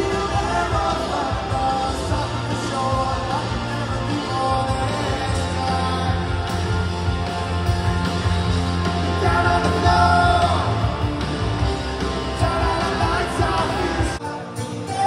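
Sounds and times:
man singing: 0.0s - 6.8s, 9.1s - 11.1s, 12.3s - 15.0s
live rock band: 0.0s - 15.0s.

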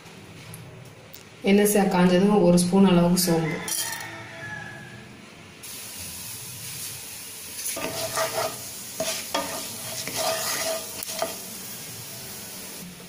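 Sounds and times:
seeds sizzling in hot oil: 5.6s - 12.9s
utensil scraping a pan: 7.6s - 11.5s.

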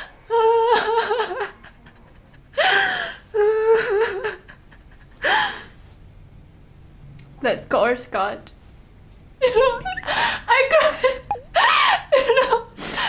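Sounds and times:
woman laughing and whimpering: 9.4s - 12.6s.

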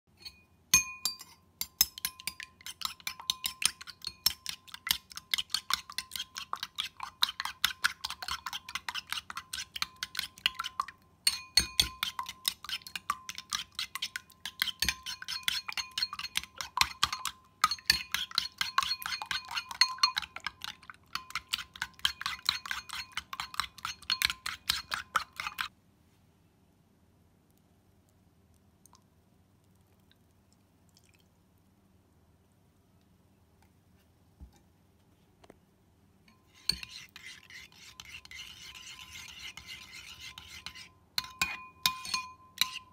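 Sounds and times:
spoon clinking against bowl: 0.1s - 25.7s, 36.3s - 42.9s.

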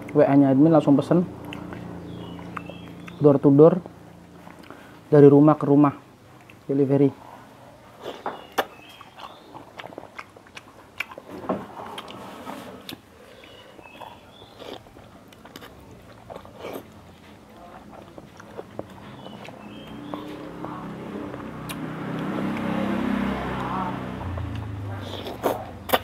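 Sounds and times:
mouth clicks and smacks: 1.3s - 4.8s, 8.1s - 12.2s, 18.0s - 23.7s, 24.3s - 26.0s
wet chewing: 1.3s - 5.0s, 6.3s - 6.7s, 7.8s - 26.0s.

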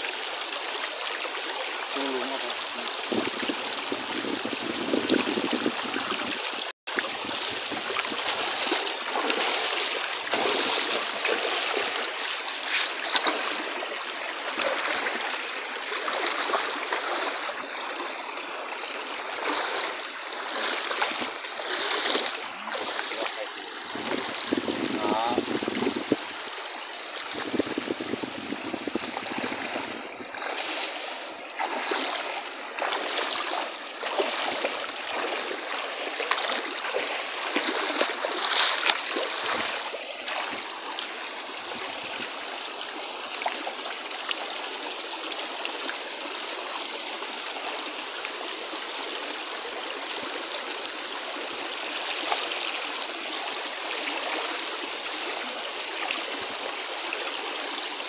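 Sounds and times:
stream running over stones: 0.0s - 58.0s
splashing in water: 1.9s - 26.5s, 27.1s - 42.4s.

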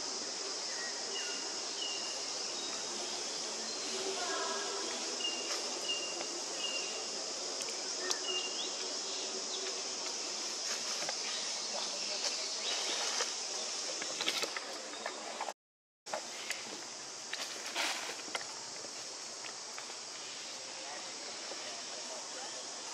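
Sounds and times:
high-pitched insect drone: 0.0s - 14.3s.

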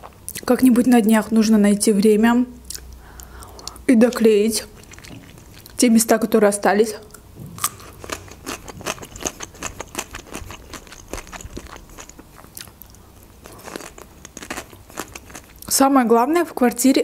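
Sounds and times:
chewing crisp cucumber: 2.6s - 5.8s, 7.1s - 15.7s.

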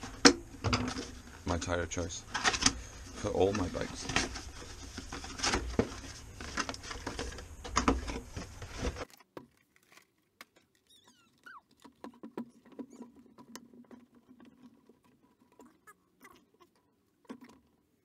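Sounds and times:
cardboard box rustling and scraping: 3.4s - 9.1s
brief squeaks: 10.9s - 11.6s.

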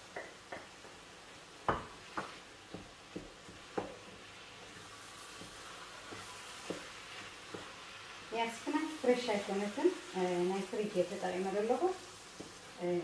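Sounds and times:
spoon knocking frying pan: 0.0s - 1.0s, 1.6s - 4.3s, 5.3s - 7.8s
faint sizzle from pan: 0.0s - 13.0s.

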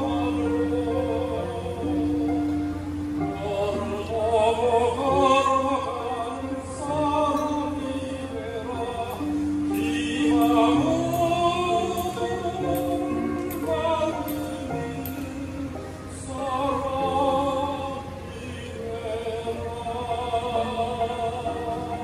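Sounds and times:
mixed choir singing in harmony: 8.7s - 18.7s.

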